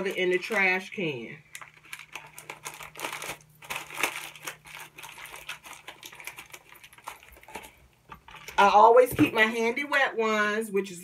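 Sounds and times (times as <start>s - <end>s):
glove crinkling and crackling: 1.5s - 8.6s.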